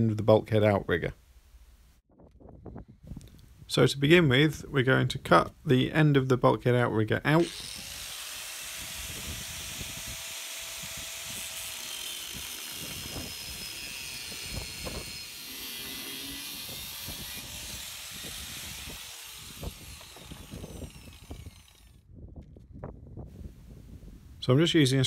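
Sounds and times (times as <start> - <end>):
angle grinder cutting steel: 7.4 - 22.0.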